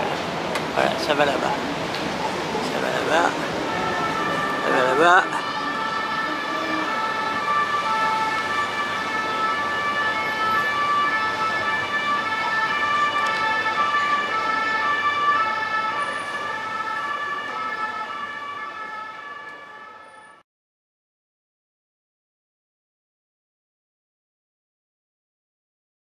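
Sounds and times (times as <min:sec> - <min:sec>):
two-tone emergency siren: 0:02.8 - 0:20.4.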